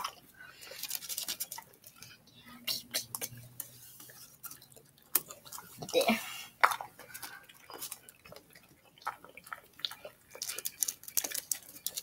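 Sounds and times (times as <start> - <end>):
dog chewing and licking: 6.6 - 12.0.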